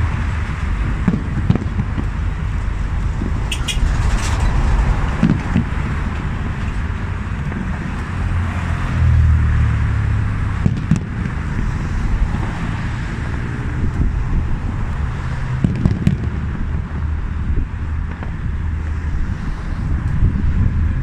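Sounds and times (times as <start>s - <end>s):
fireworks sharp cracks: 1.0s - 2.5s, 3.2s - 6.8s, 10.6s - 11.8s, 15.5s - 17.1s
fireworks rumbling hiss: 10.6s - 20.9s.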